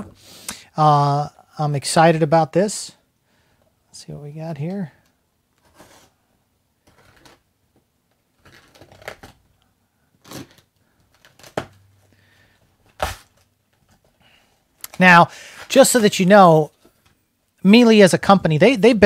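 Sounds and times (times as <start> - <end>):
tape and cardboard crinkling: 6.8 - 9.6, 10.2 - 12.1, 12.8 - 14.2.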